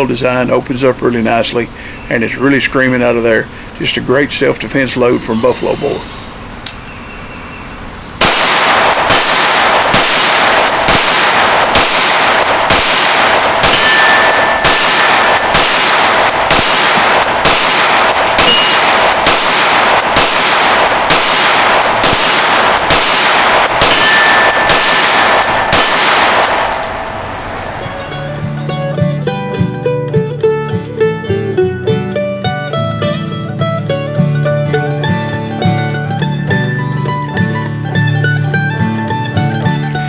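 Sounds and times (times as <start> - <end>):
pistol shots: 8.2 - 28.4
short ringing tone: 13.7 - 14.7, 18.4 - 19.2, 23.9 - 25.8.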